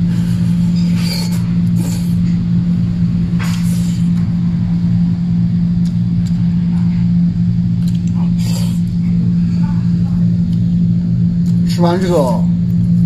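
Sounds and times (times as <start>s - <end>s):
low hum: 0.0s - 13.0s
slurping noodles: 0.4s - 2.3s, 7.9s - 9.0s
chewing: 7.8s - 9.2s.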